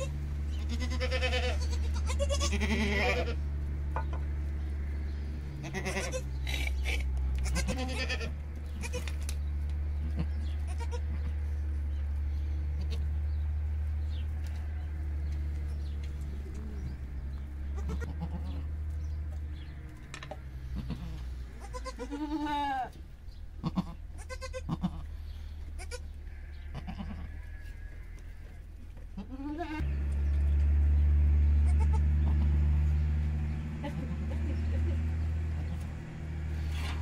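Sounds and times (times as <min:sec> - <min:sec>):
goat bleating: 0:00.0 - 0:03.6, 0:05.5 - 0:09.3, 0:10.0 - 0:11.5, 0:12.7 - 0:13.2, 0:15.6 - 0:18.9, 0:20.6 - 0:30.0, 0:31.6 - 0:32.7
low rumble: 0:00.0 - 0:21.6, 0:29.8 - 0:37.0.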